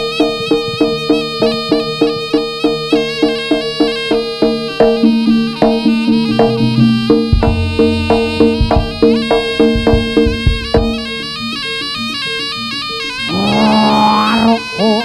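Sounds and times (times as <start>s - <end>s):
gamelan percussion: 0.0s - 14.6s
shawm playing: 2.8s - 12.2s.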